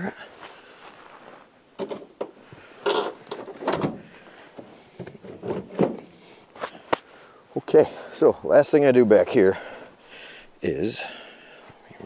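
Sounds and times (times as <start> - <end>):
metal door scraping and knocking: 1.8 - 4.1, 5.2 - 6.0.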